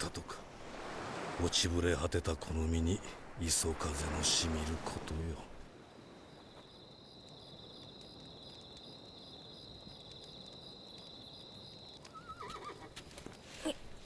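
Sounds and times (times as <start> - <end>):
crickets chirring: 3.2 - 14.0
horse whinnying: 12.1 - 13.0.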